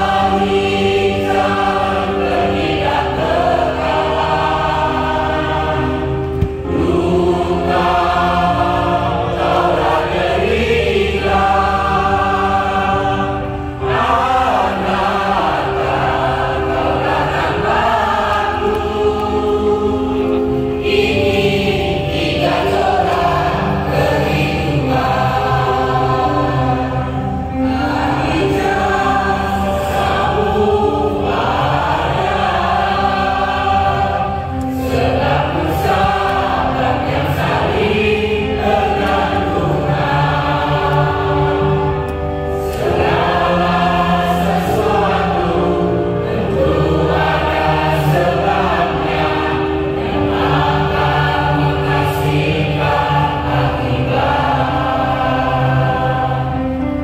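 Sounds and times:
mixed choir singing: 0:00.0 - 0:57.0.

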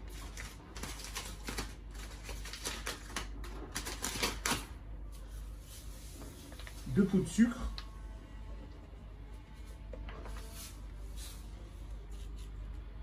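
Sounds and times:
plastic packaging crinkling: 0:00.0 - 0:07.4.

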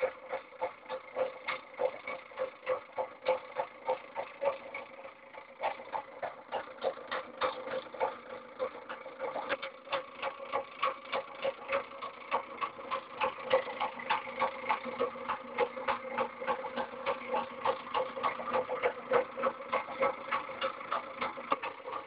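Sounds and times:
fast even clicking of motor: 0:00.0 - 0:22.0
steady motor hum: 0:00.0 - 0:22.0.

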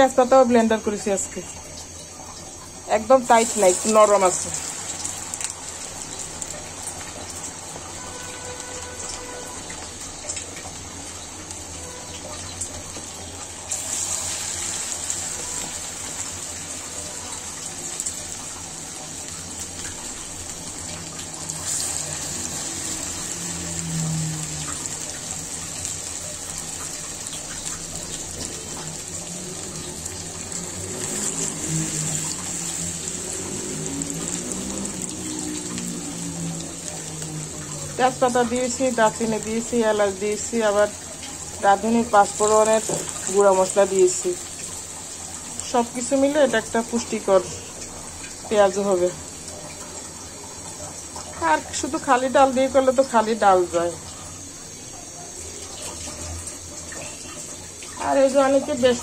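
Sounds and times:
fritters deep-frying in hot oil: 0:00.0 - 0:59.0.

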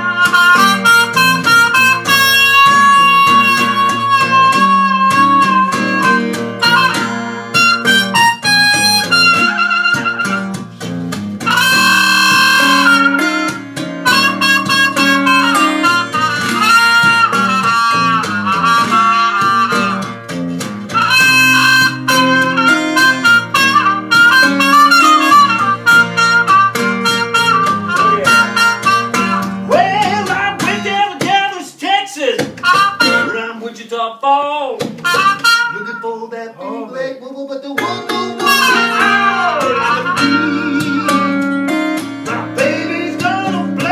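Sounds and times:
trumpet wailing lead lines: 0:00.0 - 0:10.6, 0:11.4 - 0:20.1, 0:20.9 - 0:29.9, 0:32.6 - 0:33.5, 0:35.0 - 0:36.8, 0:38.2 - 0:41.5
acoustic guitar accompaniment: 0:00.0 - 0:43.9.

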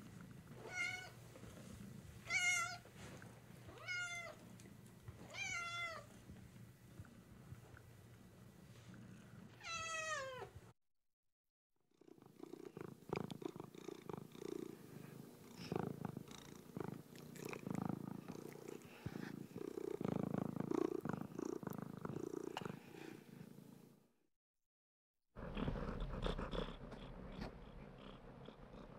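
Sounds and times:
cat purring: 0:00.0 - 0:02.3, 0:11.9 - 0:23.8, 0:25.4 - 0:28.9
cat meowing: 0:09.6 - 0:10.5.

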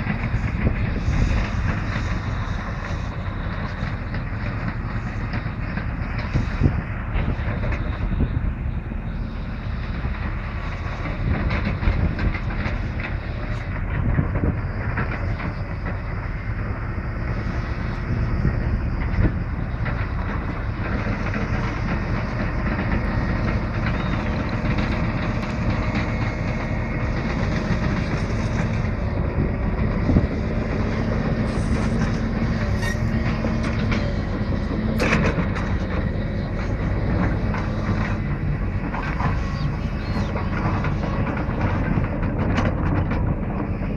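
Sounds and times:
excavator diesel engine running: 0:00.0 - 0:43.9.

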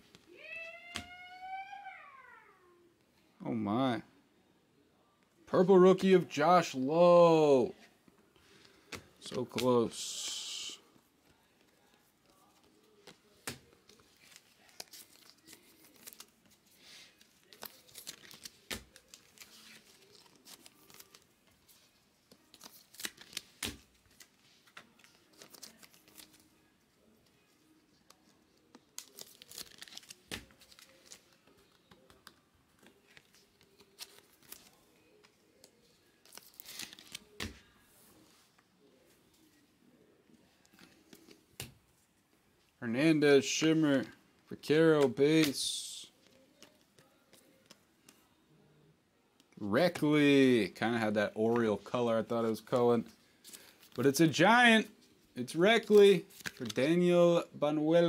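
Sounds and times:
plastic wrappers crinkling: 0:11.3 - 0:26.5, 0:28.0 - 0:37.8
cards tapping together: 0:17.5 - 0:19.5.

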